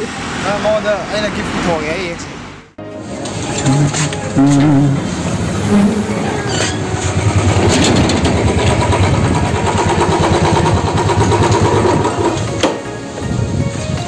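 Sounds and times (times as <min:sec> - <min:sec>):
motorcycle engine running: 0:03.7 - 0:12.6.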